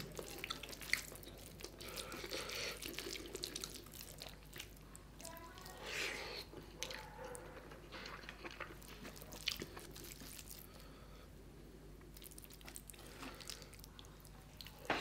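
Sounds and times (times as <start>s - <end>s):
mouth chewing: 0.0s - 10.9s, 12.0s - 15.0s.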